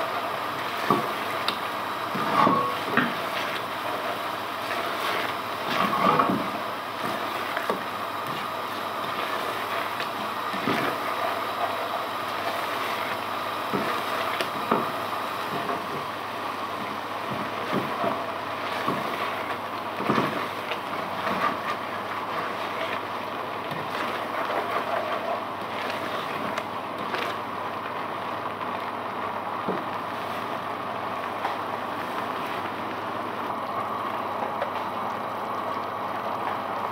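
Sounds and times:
spatula scraping a pot: 0:17.3 - 0:23.1, 0:23.7 - 0:27.2.

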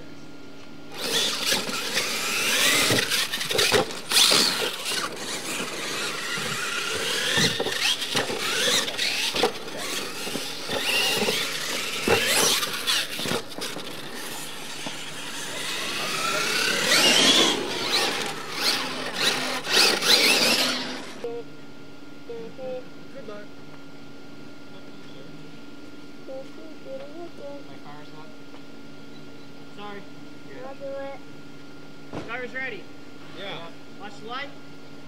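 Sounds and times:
toy truck motors whining: 0:00.9 - 0:21.3.

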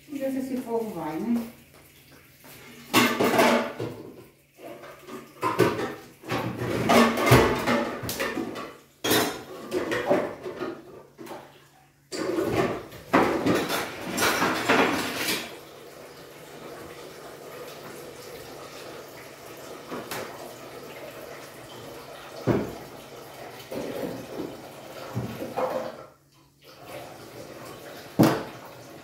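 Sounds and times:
dishes clattering in sink: 0:02.5 - 0:15.7, 0:19.8 - 0:26.2, 0:26.8 - 0:29.0.

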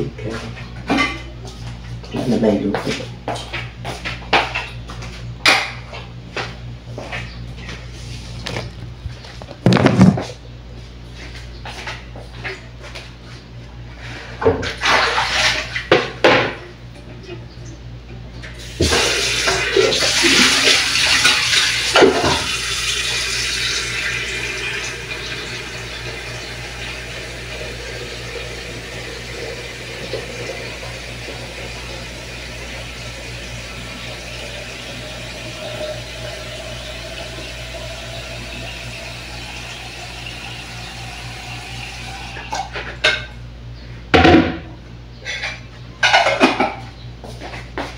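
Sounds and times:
dishes and plastic basin knocking: 0:09.4 - 0:10.4
faucet running into sink: 0:18.7 - 0:42.5.

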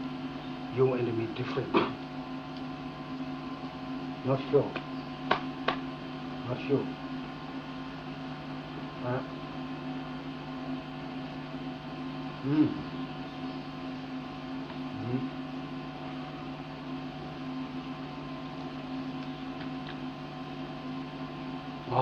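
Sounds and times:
electrical mains hum: 0:00.0 - 0:22.0
low vocal murmur: 0:12.4 - 0:12.9.

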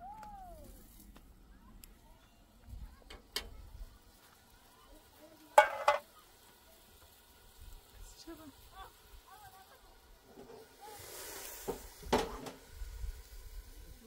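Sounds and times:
metal cookware clinking: 0:05.6 - 0:06.0.

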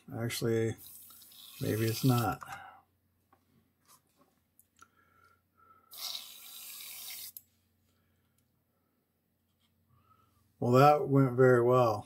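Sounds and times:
airbrush hissing: 0:00.7 - 0:02.4, 0:05.9 - 0:07.4.

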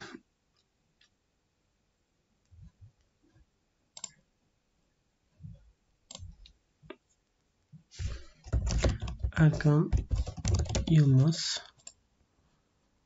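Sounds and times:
computer mouse clicks: 0:04.0 - 0:04.2, 0:06.1 - 0:07.0.

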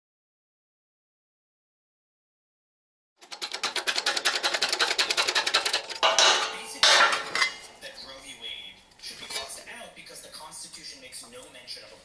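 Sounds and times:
rapid metallic clicking of jack: 0:03.2 - 0:06.6
scraping clatters of steel: 0:03.2 - 0:07.9, 0:09.0 - 0:09.6.

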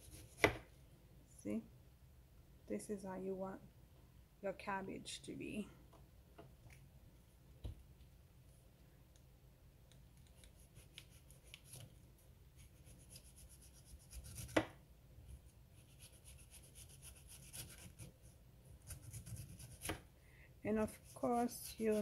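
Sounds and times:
knife shredding cabbage: 0:12.6 - 0:14.6, 0:15.8 - 0:18.1, 0:18.8 - 0:20.0, 0:20.8 - 0:22.0.

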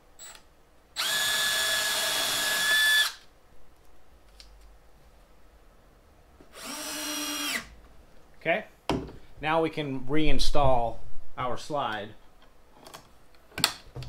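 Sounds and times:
cordless drill whining: 0:01.0 - 0:03.2, 0:06.5 - 0:07.7.

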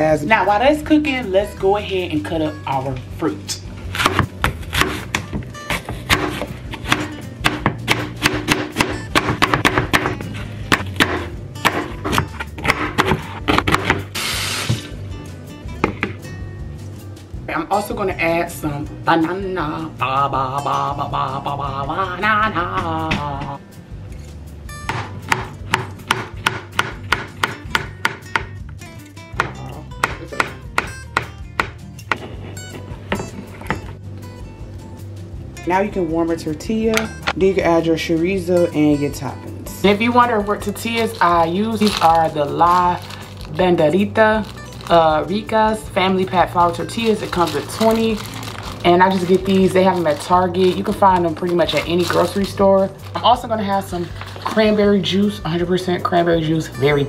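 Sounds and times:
background music: 0:00.0 - 0:57.0
knife chopping on cutting board: 0:03.9 - 0:14.1, 0:24.9 - 0:28.6, 0:29.4 - 0:33.9.

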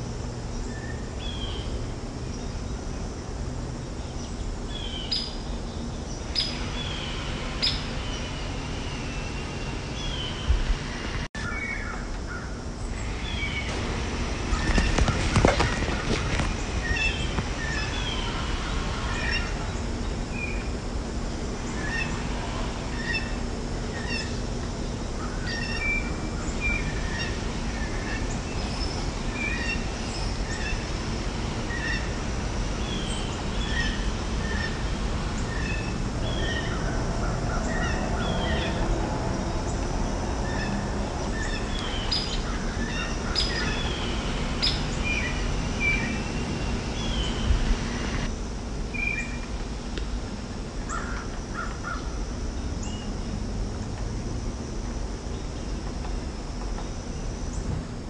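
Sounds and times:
birds singing and chirping: 0:03.9 - 0:13.8, 0:14.4 - 0:20.8, 0:21.4 - 0:48.3, 0:48.9 - 0:49.6, 0:50.8 - 0:53.2.

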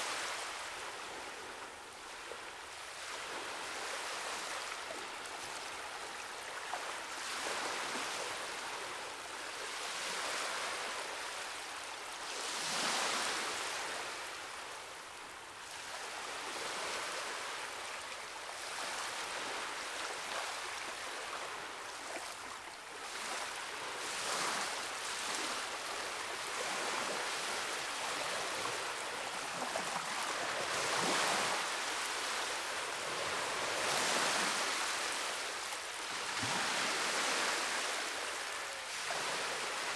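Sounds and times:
ocean surf on rocky shore: 0:23.1 - 0:39.9.

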